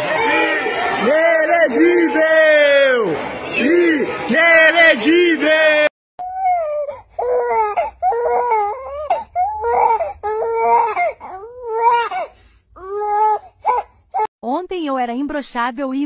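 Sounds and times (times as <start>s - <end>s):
infant crying: 6.2s - 14.3s.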